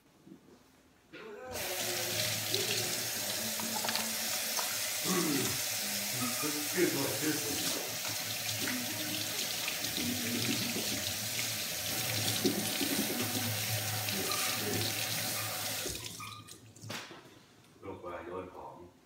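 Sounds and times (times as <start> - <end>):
tap running into sink: 1.7 - 5.6, 7.5 - 8.8.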